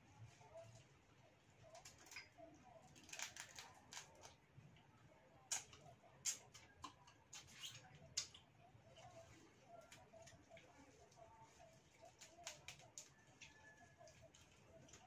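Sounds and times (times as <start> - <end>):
shrimp shells crackling: 3.0 - 4.3.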